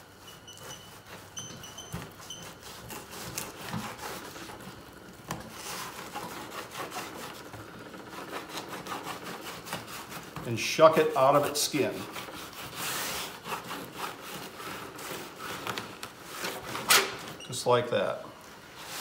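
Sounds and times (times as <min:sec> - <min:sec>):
knife sawing and scraping: 0:00.0 - 0:17.4, 0:18.8 - 0:19.0
brief high squeaks: 0:00.2 - 0:02.8.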